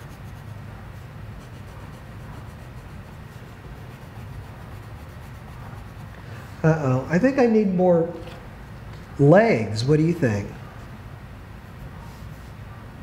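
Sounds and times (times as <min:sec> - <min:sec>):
pencil scratching on paper: 0:00.0 - 0:06.2
low room hum: 0:00.0 - 0:13.0.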